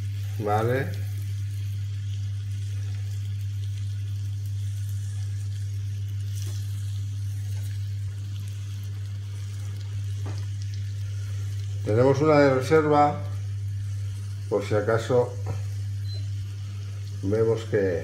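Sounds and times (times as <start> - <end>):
caramel sizzling in a pan: 0.0 - 18.0
steady low hum: 0.0 - 18.0.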